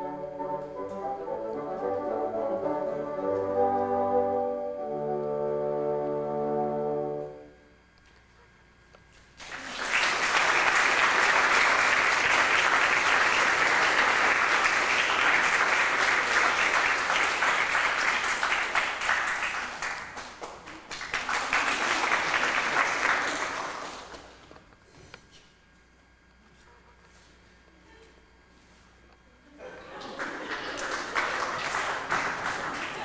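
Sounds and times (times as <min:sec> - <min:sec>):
audience applause: 0:09.4 - 0:24.5, 0:29.7 - 0:33.0.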